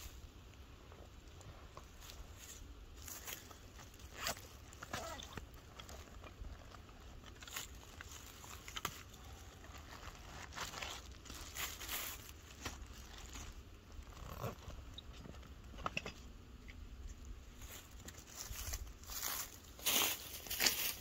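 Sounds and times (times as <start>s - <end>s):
dry leaves crunching: 1.9s - 14.3s, 17.6s - 21.0s
bags and fabric rustling: 1.9s - 14.8s.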